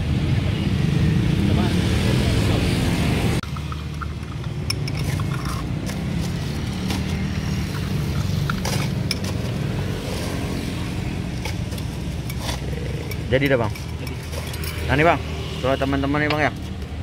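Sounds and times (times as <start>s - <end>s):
metal spoon clinking on glass: 12.1s - 15.0s.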